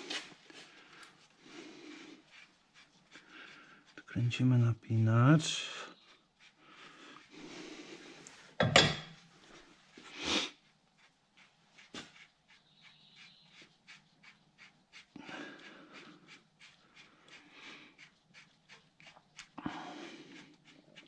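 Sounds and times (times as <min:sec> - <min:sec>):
man breathing hard: 0:19.6 - 0:20.5.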